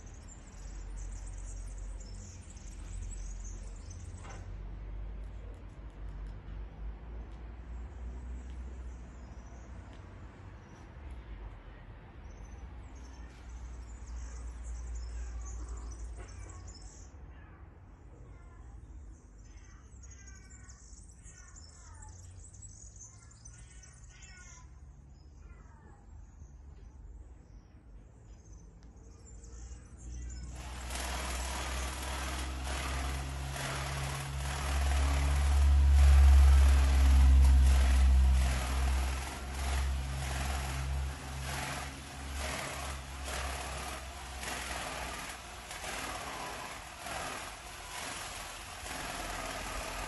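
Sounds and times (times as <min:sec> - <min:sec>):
low outdoor rumble: 0:30.5 - 0:50.0.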